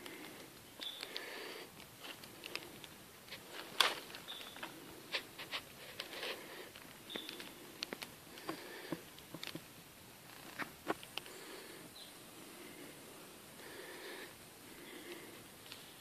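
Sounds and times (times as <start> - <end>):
clicks and crackles: 0.0 - 11.4.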